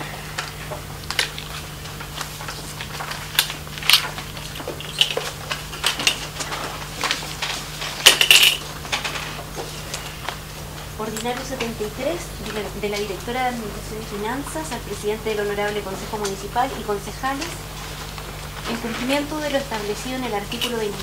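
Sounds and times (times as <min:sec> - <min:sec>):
low electrical hum: 0:00.0 - 0:21.0
paper rustling: 0:17.3 - 0:21.0.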